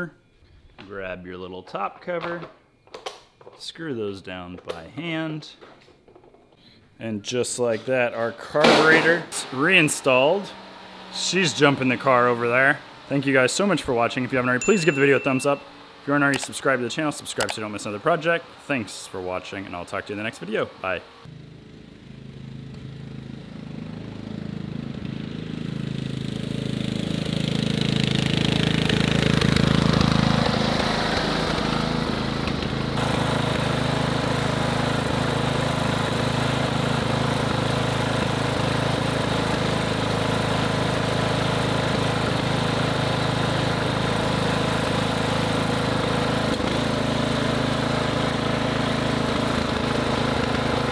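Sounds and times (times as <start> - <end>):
riding mower engine running: 8.6 - 18.7, 20.7 - 50.9.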